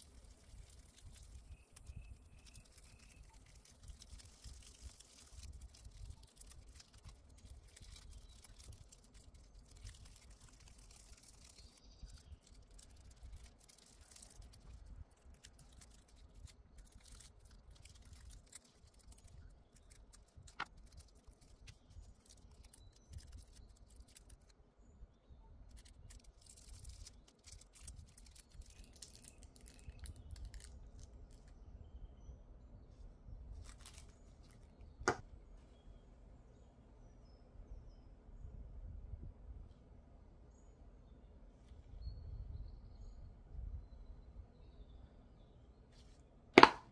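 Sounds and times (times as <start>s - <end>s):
faint foil rustling: 0.0s - 24.5s, 25.7s - 31.5s, 32.9s - 34.8s.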